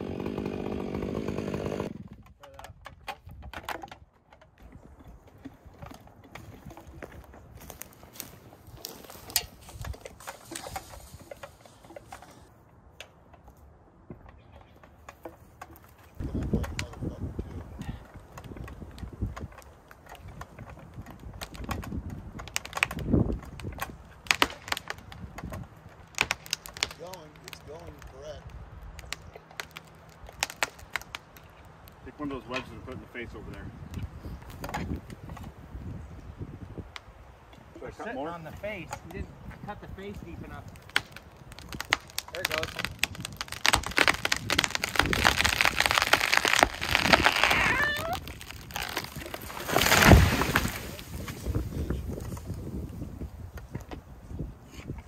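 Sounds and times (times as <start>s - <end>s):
wood cracking and snapping: 0.0s - 13.2s, 14.3s - 32.7s, 40.0s - 54.0s
tree trunk hitting ground: 5.3s - 12.5s, 14.1s - 32.7s, 38.6s - 54.1s.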